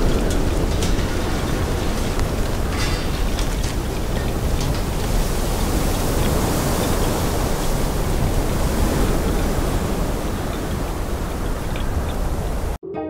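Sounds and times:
wind blowing: 0:00.0 - 0:12.8.

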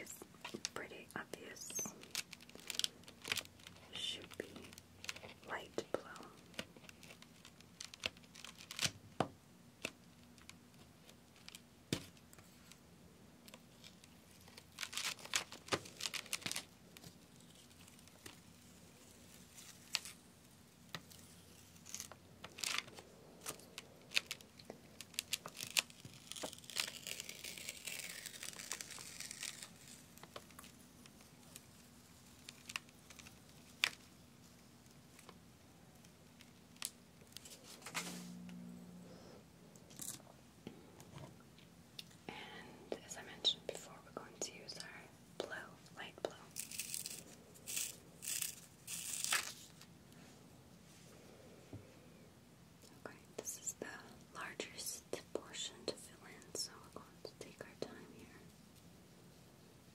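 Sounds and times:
soft rustling hiss: 0:00.0 - 0:59.9
protective film peeling off: 0:13.8 - 0:16.7, 0:25.0 - 0:34.1, 0:46.6 - 0:49.9.

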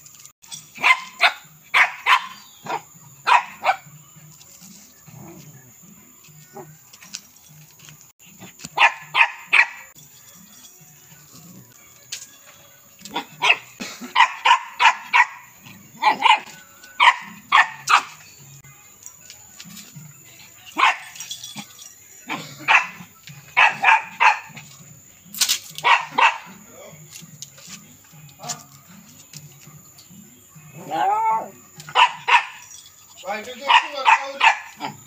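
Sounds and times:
small dog barking: 0:00.8 - 0:03.9, 0:08.8 - 0:09.9, 0:13.1 - 0:18.2, 0:20.8 - 0:21.2, 0:22.3 - 0:24.7, 0:25.8 - 0:26.6, 0:30.8 - 0:32.6, 0:33.6 - 0:35.0.

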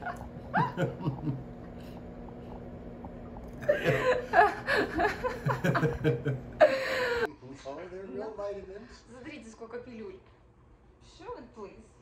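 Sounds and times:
man laughing: 0:00.5 - 0:01.5, 0:03.6 - 0:07.3.

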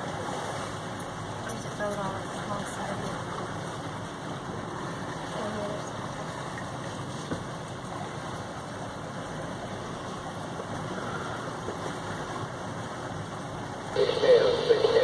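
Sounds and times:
boat engines droning: 0:00.0 - 0:15.0
water washing along hull: 0:00.0 - 0:15.0.

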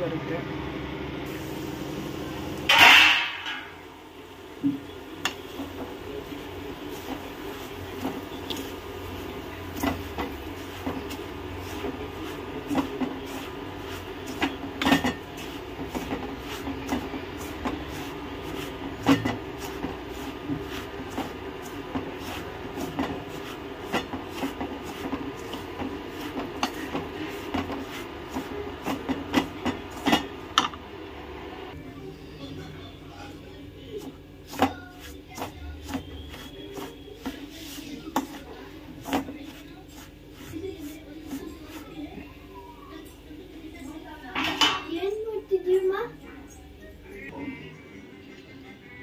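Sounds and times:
wooden spatula scraping metal pan: 0:06.7 - 0:30.8, 0:34.0 - 0:42.2.

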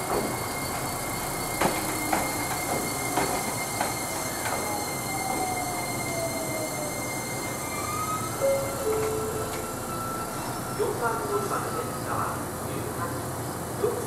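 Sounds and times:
wheels clacking over rail joints: 0:00.0 - 0:05.5
high-pitched squeal: 0:00.0 - 0:12.6.

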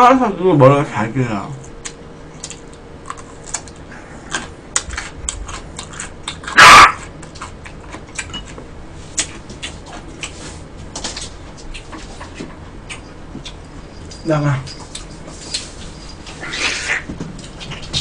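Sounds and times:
dog barking sharply: 0:06.5 - 0:07.0.

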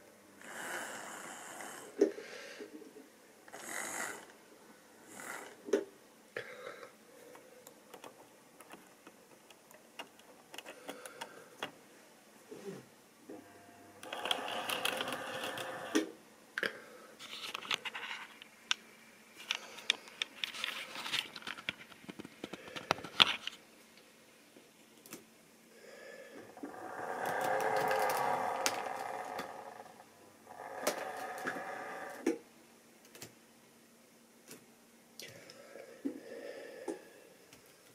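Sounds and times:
plastic model wagon clicks: 0:14.0 - 0:16.0, 0:27.2 - 0:29.5.

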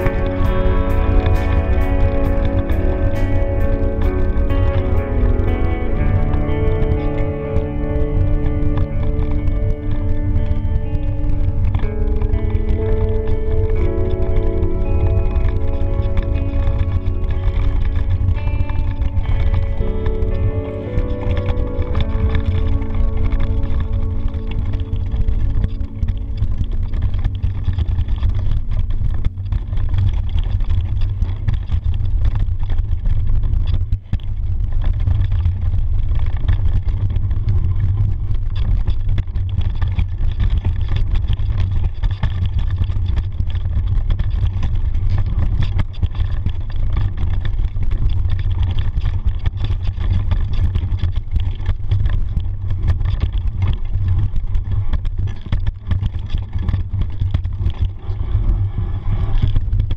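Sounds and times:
wind buffeting microphone: 0:00.0 - 0:59.9
bike rattles and knocks: 0:10.2 - 0:59.9.

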